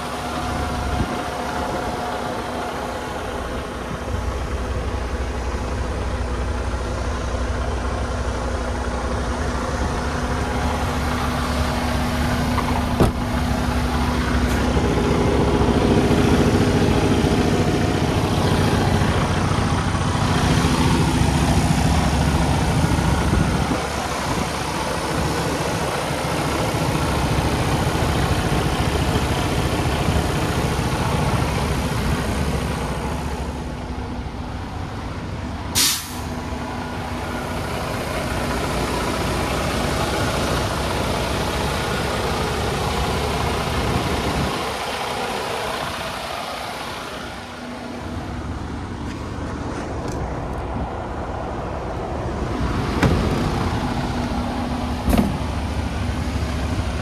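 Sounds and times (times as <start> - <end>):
truck diesel engine idling: 0.0 - 57.0
air hiss: 35.8 - 36.3.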